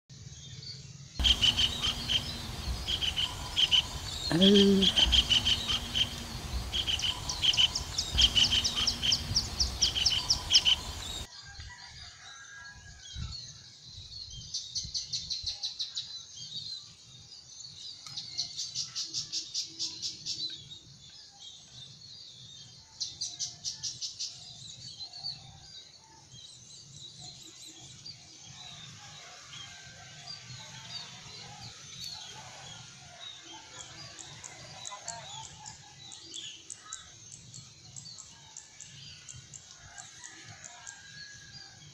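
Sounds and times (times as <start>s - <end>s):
kingfisher harsh calls: 1.2s - 11.2s.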